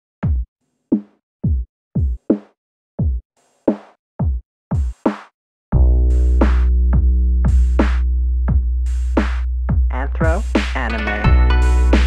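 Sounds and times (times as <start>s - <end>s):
drum machine kicks: 0.2s - 0.4s, 1.4s - 2.4s, 3.0s - 5.2s, 5.8s - 12.0s
bass and synth chords: 5.8s - 12.0s
snare or clap hits: 7.8s - 8.0s, 9.2s - 9.4s.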